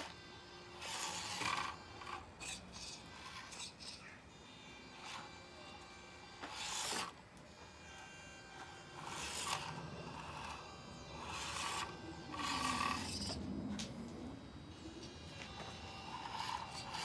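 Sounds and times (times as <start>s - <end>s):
small electric motor whirring: 0.0s - 17.0s
tyres scraping on stone: 0.8s - 4.2s, 6.4s - 7.2s, 8.6s - 10.6s, 11.2s - 13.4s, 15.5s - 17.0s.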